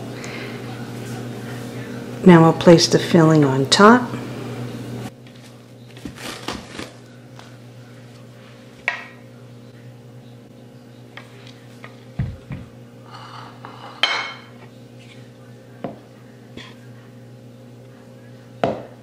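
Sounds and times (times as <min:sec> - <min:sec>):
plastic wrap rustling: 0:05.2 - 0:08.2.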